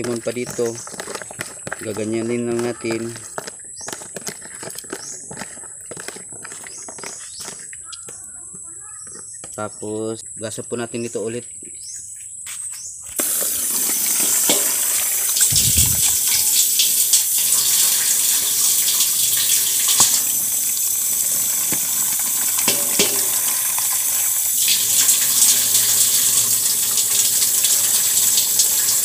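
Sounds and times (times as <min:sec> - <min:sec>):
water being poured out: 0:00.0 - 0:03.5, 0:13.2 - 0:29.0
water streaming into metal basin: 0:13.2 - 0:29.0.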